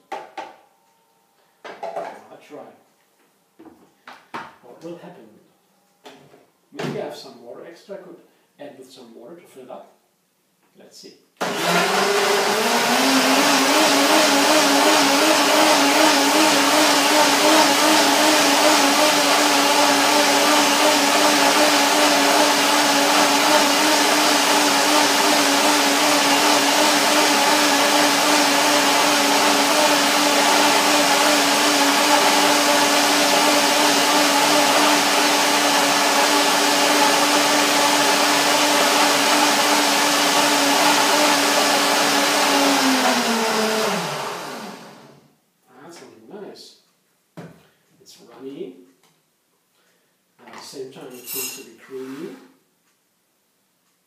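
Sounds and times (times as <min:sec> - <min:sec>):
blender motor running: 0:11.4 - 0:45.2.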